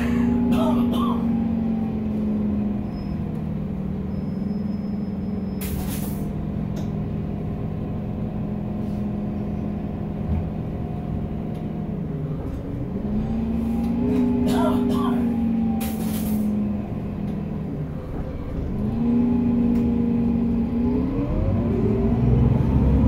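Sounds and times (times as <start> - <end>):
bus engine droning: 0.0 - 23.0.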